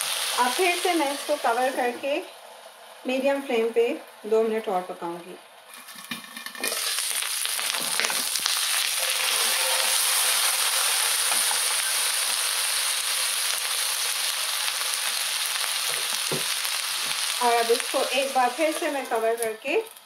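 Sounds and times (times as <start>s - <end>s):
potatoes sizzling in oil: 0.0s - 4.9s, 5.6s - 20.0s
knocks in frying pan: 15.9s - 17.2s.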